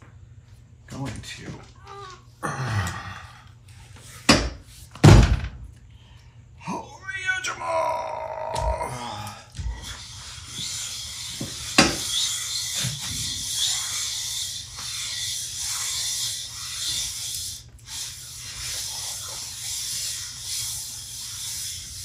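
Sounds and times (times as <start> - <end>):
gritty rubbing on lapping plate: 9.8 - 22.0.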